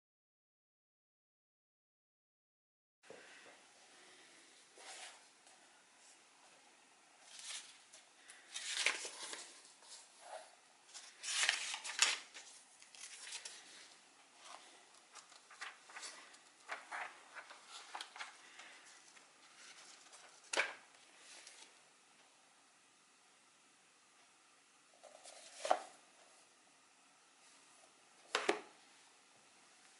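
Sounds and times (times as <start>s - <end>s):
book pages flipping: 7.2s - 21.8s, 25.0s - 26.0s.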